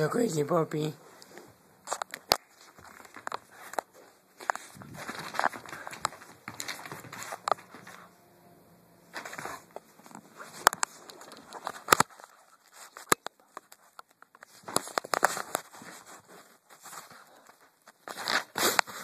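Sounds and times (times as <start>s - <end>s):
puppy scrabbling on a rug: 1.9s - 8.0s.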